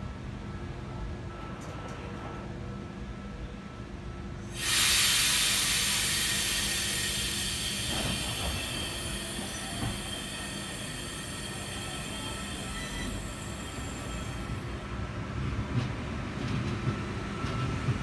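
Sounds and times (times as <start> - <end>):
air brakes hissing: 4.5 - 14.6.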